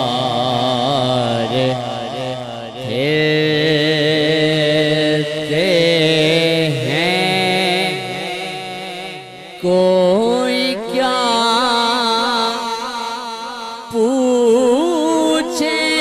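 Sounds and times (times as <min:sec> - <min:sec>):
person singing devotional song: 0:00.0 - 0:16.0.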